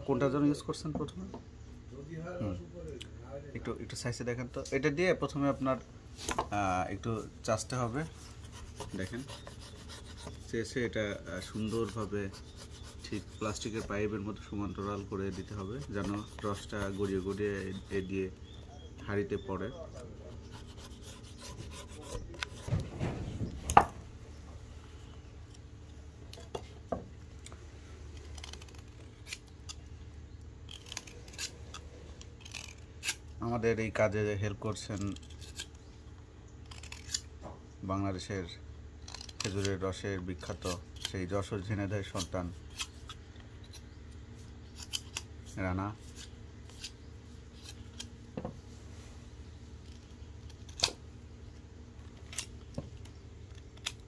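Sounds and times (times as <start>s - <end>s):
steady low hum: 0.0s - 54.0s
blade scraping bamboo: 6.1s - 18.6s, 19.6s - 23.2s, 28.1s - 29.9s, 30.6s - 33.6s, 34.6s - 35.9s, 36.6s - 37.3s, 39.0s - 48.2s.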